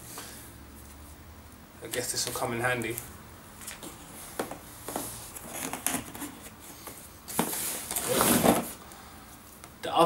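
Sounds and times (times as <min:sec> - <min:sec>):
hands rummaging in cardboard box: 0:07.3 - 0:08.8.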